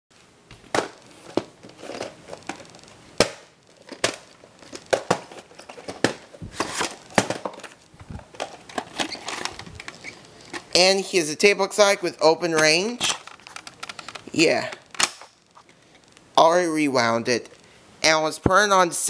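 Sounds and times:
rustling and crinkling: 0.2 - 3.0, 3.6 - 10.8, 12.8 - 16.3.

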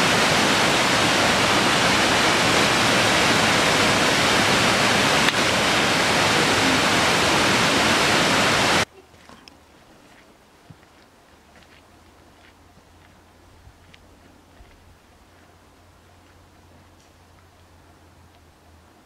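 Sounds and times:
waterfall rushing: 0.0 - 8.9.

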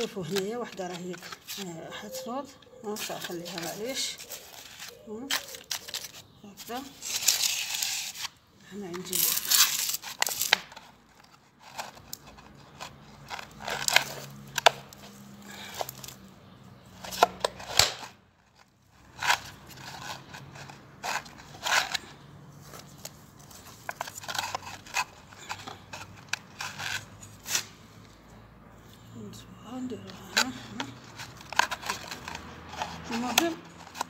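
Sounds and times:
hand scooping potting soil: 0.0 - 11.0, 29.7 - 34.0
plastic container crinkling: 3.0 - 16.2, 17.0 - 27.6, 30.1 - 34.0.

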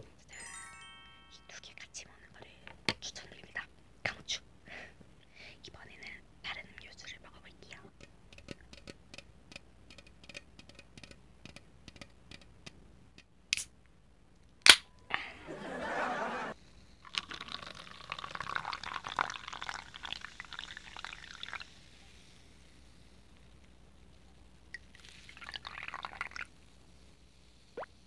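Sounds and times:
fingers clicking on can: 7.9 - 13.7
can pull-tab popping open: 13.5 - 13.7, 14.6 - 14.9
carbonation fizzing: 16.7 - 22.6, 24.7 - 26.6.

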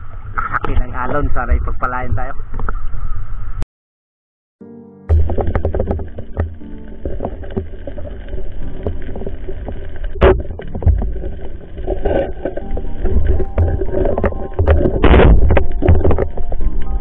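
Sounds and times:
underwater rumble of moving water: 5.1 - 17.0
crackling underwater clicks: 5.2 - 17.0.

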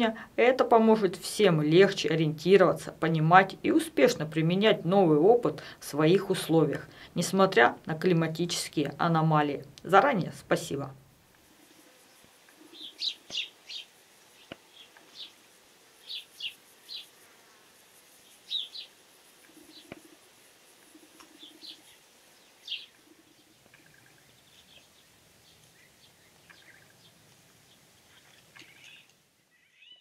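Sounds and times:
songbirds chirping: 0.0 - 17.2, 18.1 - 30.0
faint background hiss: 0.0 - 30.0.

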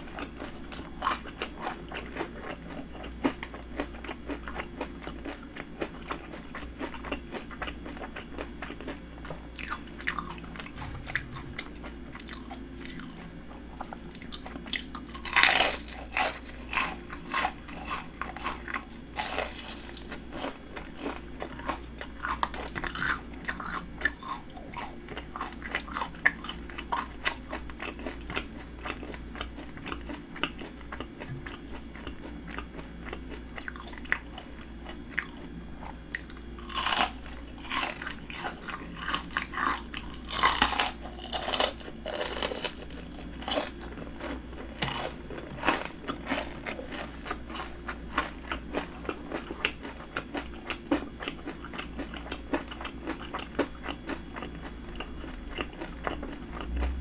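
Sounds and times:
chewing fried shrimp: 0.0 - 57.0
loud crunchy bites: 9.6 - 13.2, 14.1 - 29.0, 36.1 - 54.5.

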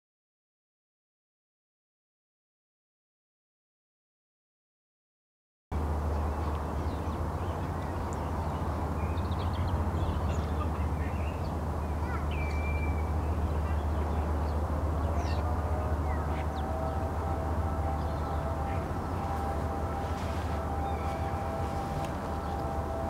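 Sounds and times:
low riverside rumble: 5.7 - 23.0
birds calling: 6.1 - 23.0.

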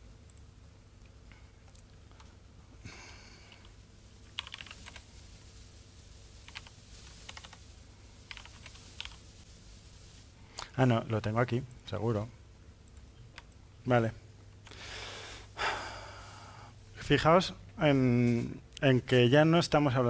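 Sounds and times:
steady low hum: 0.0 - 20.0
laptop keyboard typing: 3.5 - 5.1, 6.4 - 7.6, 8.3 - 9.2.

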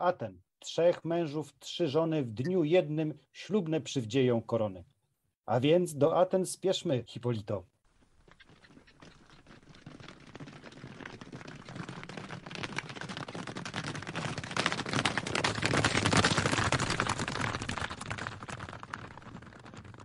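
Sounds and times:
horses galloping hoofbeats: 7.9 - 20.0.

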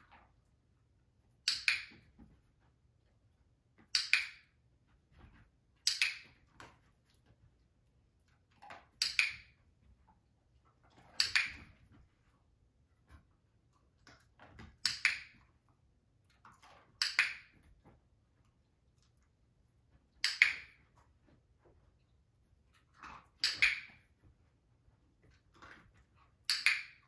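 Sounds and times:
sharp clicks: 1.4 - 2.1.

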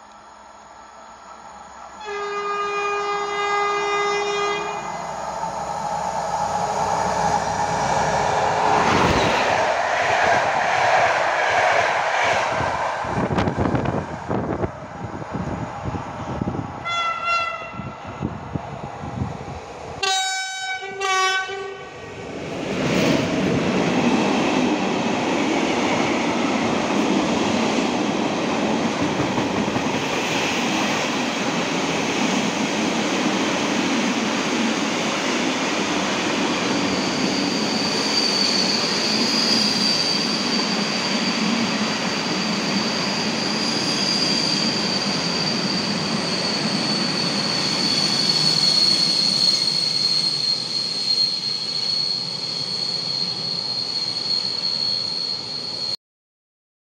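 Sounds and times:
locomotive horn blasts: 2.0 - 4.8, 16.8 - 17.9, 20.0 - 21.9
high wheel squeal: 36.6 - 56.0.

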